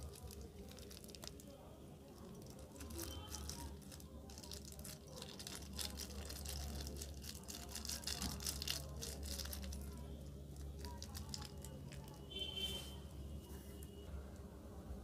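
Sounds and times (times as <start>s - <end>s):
plastic bag crinkling: 0.0s - 12.2s.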